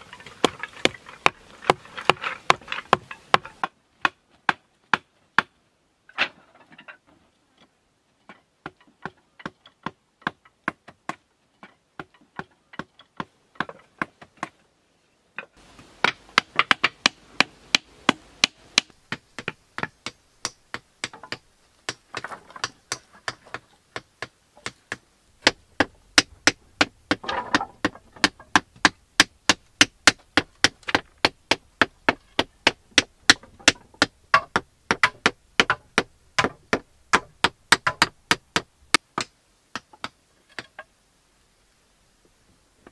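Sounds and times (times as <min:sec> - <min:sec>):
stakes hammered into ground: 0:16.0 - 0:40.7.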